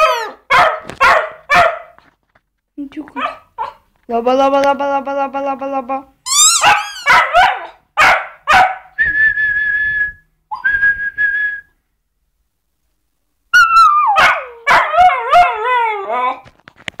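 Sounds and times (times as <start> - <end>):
puppy barking: 0.0 - 2.0, 3.1 - 3.9, 6.3 - 9.0, 13.6 - 15.6
puppy howling barks: 0.0 - 2.0, 6.4 - 8.9, 13.6 - 16.4
whistled notes: 9.0 - 11.8.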